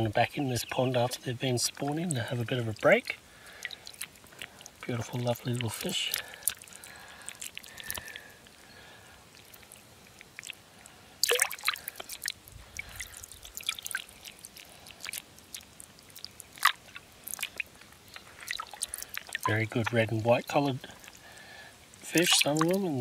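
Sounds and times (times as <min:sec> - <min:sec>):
water dripping and plinking: 0:00.9 - 0:08.6, 0:11.2 - 0:23.0
fish splashing into water: 0:03.3 - 0:08.6, 0:11.2 - 0:20.0, 0:21.0 - 0:23.0.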